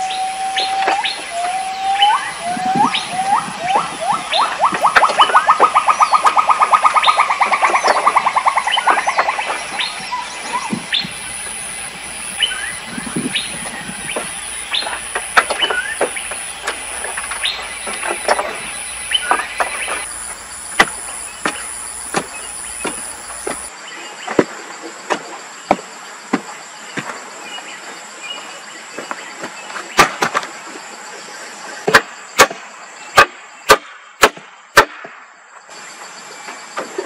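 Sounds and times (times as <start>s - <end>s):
birds chirping: 0.0s - 23.7s
insects buzzing: 0.0s - 24.0s.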